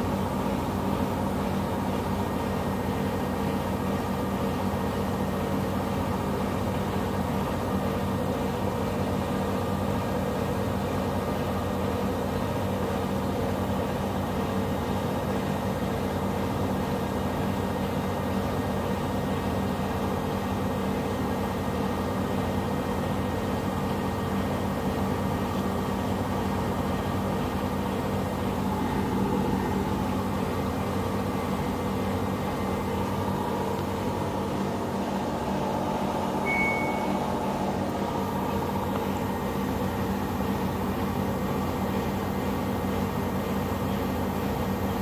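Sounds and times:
washing machine drum spinning: 0.0 - 45.0
short high tone: 36.4 - 37.4.

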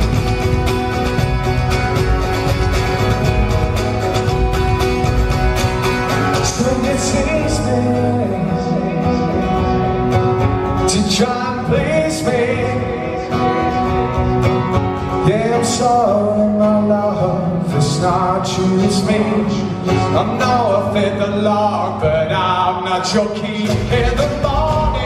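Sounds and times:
cajon beat: 0.0 - 12.6, 23.6 - 25.0
strummed acoustic guitar: 0.0 - 25.0
man singing: 6.2 - 10.1, 10.7 - 14.1, 15.1 - 25.0.

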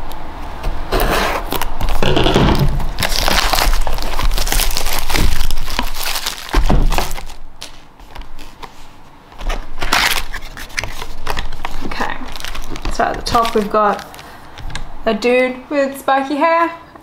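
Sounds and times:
shrink wrap crinkling: 1.0 - 15.0
box lid rustle: 9.4 - 14.2.

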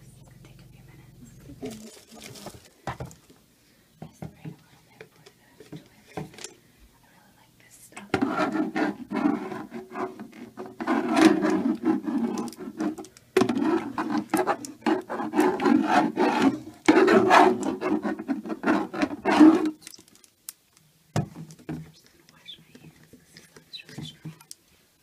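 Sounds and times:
toilet brush scrubbing bowl: 8.0 - 19.8.

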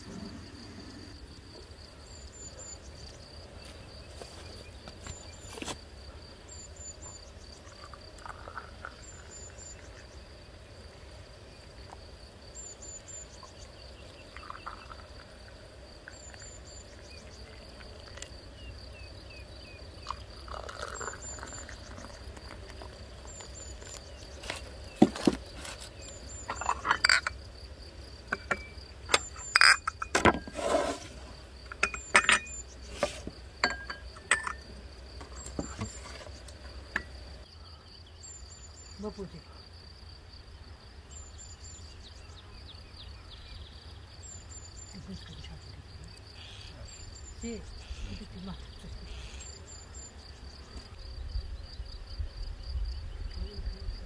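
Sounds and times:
insect trill: 0.0 - 54.0
tea pouring into glasses: 7.7 - 10.0, 14.1 - 18.3, 20.0 - 23.0
small bird chirping: 12.6 - 15.1
glasses clinking on wooden table: 26.5 - 27.4, 28.3 - 30.6, 31.7 - 32.6, 33.6 - 34.6.

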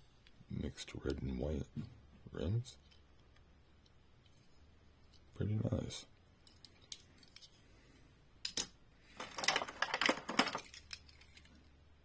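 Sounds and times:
toy cars clicking and rattling: 8.5 - 11.7.

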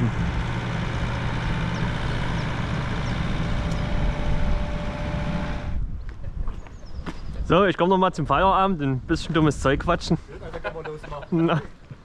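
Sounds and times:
concrete mixer drone: 0.0 - 5.9.

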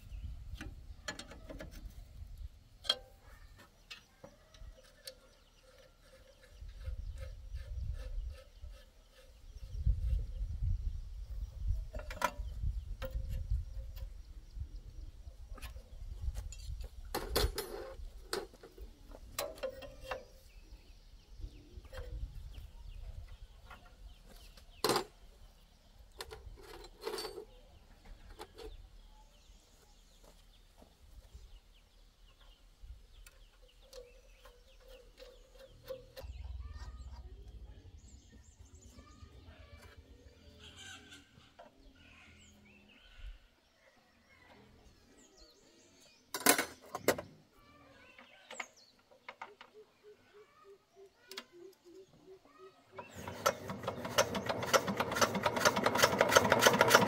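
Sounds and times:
tools in metal toolbox: 16.5 - 18.7, 26.1 - 27.6, 46.3 - 47.2
wrenches clinking on metal: 26.2 - 27.6.

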